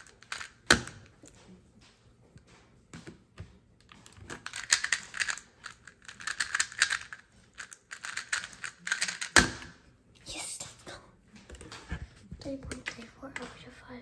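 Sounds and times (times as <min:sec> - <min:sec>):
speed cube plastic clicking: 0:04.3 - 0:09.7.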